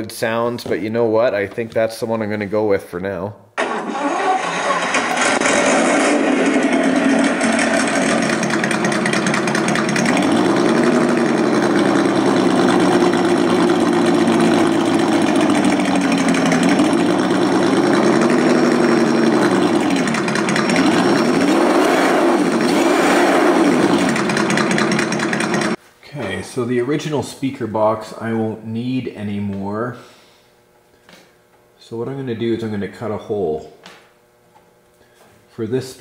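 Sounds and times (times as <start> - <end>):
simulated engine revving through speaker: 20.8 - 24.1.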